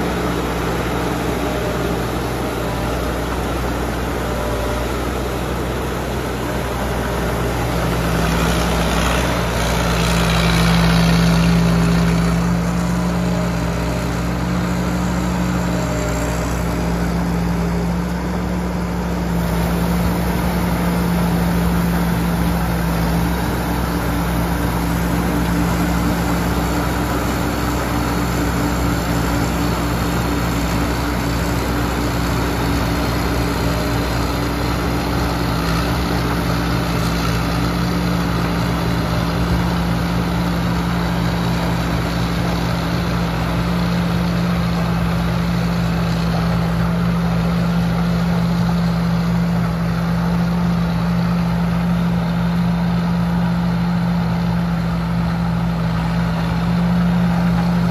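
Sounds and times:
combine harvester running: 0:00.0 - 0:57.9.

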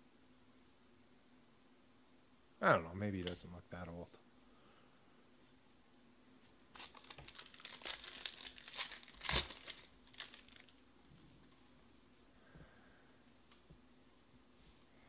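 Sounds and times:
foil ripping: 0:06.7 - 0:10.8
foil wrapper crinkling: 0:06.7 - 0:10.8.

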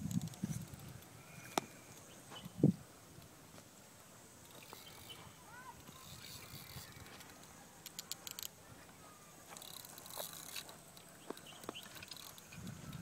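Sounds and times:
fishing reel clicking: 0:04.4 - 0:05.2, 0:05.8 - 0:08.6, 0:09.5 - 0:13.0.

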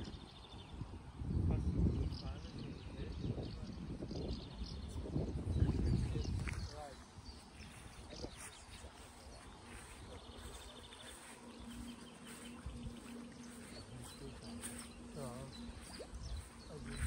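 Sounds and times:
high chirps: 0:09.6 - 0:17.0.

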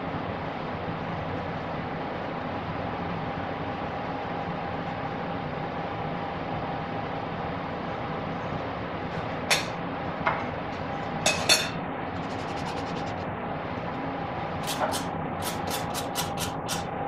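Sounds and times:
kitchen hum with held tone: 0:00.0 - 0:17.0
metal cookware clinking: 0:11.3 - 0:11.8.

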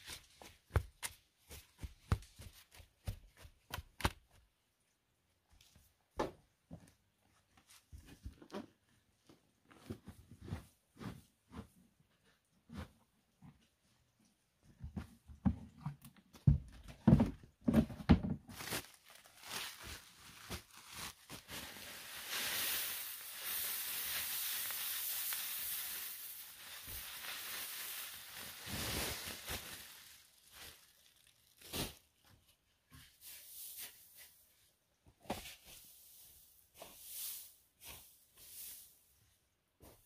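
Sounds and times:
soil knocking from plastic bucket: 0:14.8 - 0:18.6
rice husks pouring with dry hiss: 0:18.8 - 0:32.0, 0:33.2 - 0:34.4, 0:35.7 - 0:39.1.

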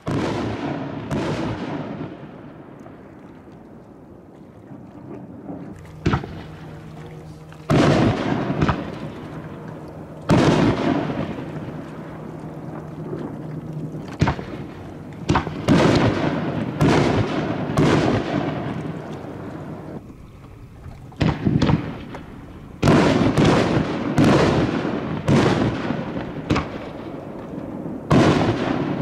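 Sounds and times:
fireworks bursting with booms: 0:00.0 - 0:02.7, 0:06.0 - 0:06.6, 0:07.7 - 0:09.3, 0:10.3 - 0:13.3, 0:14.1 - 0:19.8, 0:21.2 - 0:29.0
steady low hum: 0:00.4 - 0:29.0.

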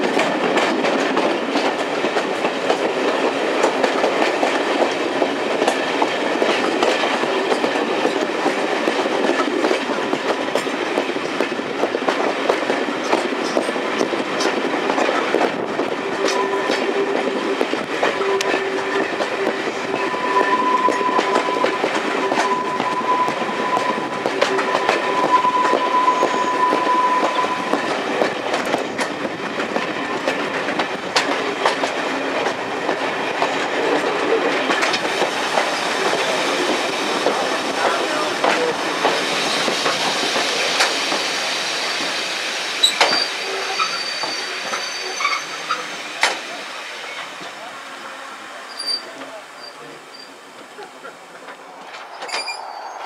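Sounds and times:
diesel train rumble: 0:00.0 - 0:53.0
thin high squeal: 0:20.0 - 0:27.7, 0:52.2 - 0:53.0.

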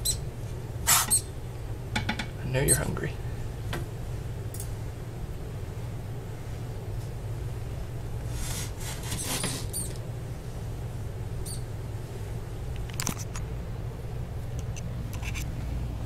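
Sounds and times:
steady low hum: 0:00.0 - 0:16.0
short high squeak: 0:00.9 - 0:01.3, 0:09.1 - 0:10.0.

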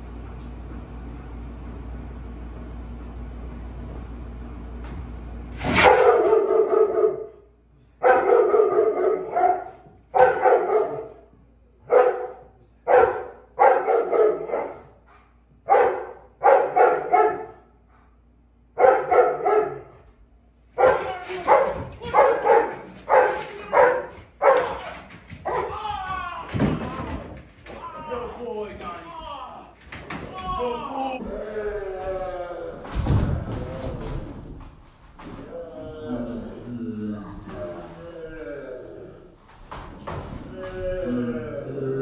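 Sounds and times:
dog barking: 0:05.8 - 0:07.4, 0:08.0 - 0:11.2, 0:11.9 - 0:15.0, 0:15.7 - 0:17.7, 0:18.8 - 0:20.0, 0:20.8 - 0:25.7.

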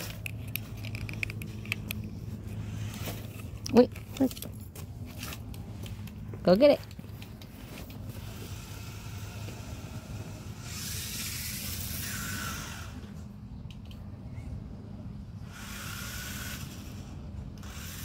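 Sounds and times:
toy car motor whirring: 0:00.0 - 0:04.5, 0:08.0 - 0:13.2, 0:15.4 - 0:18.0
low steady hum: 0:00.0 - 0:18.0.

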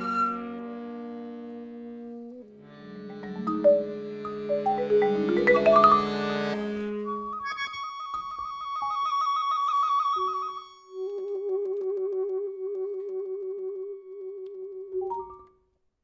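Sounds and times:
contemporary chamber ensemble: 0:02.3 - 0:07.6.

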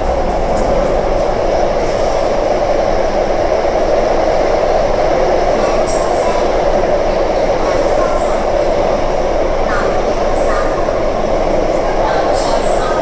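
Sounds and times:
train running through tunnel: 0:00.0 - 0:13.0.

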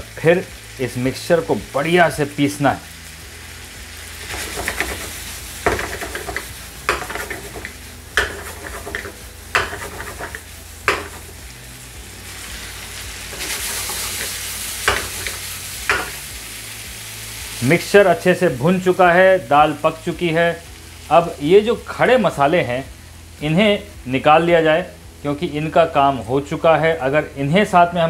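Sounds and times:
food sizzling in a frying pan: 0:00.0 - 0:28.0
utensil knocking against pan: 0:04.3 - 0:11.2, 0:14.8 - 0:16.2.

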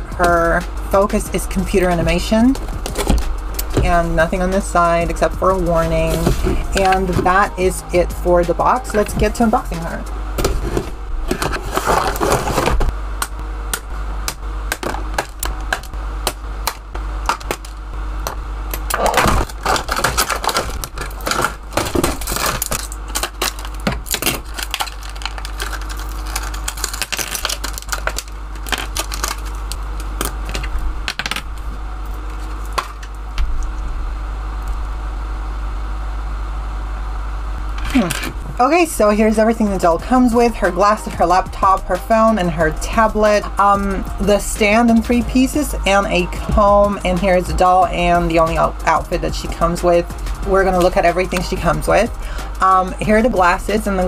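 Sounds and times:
packaging rustling: 0:10.4 - 0:12.9, 0:18.9 - 0:33.1.

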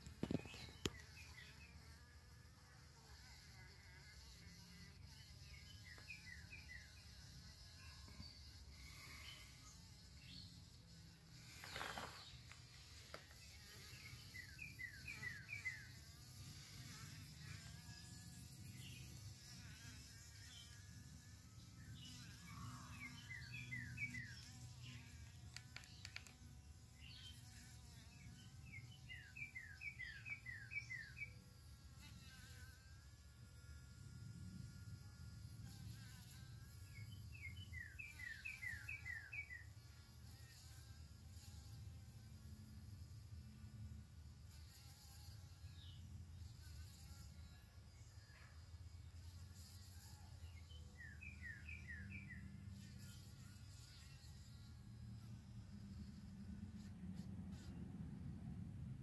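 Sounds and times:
fly buzzing faintly: 0:00.0 - 0:59.0.

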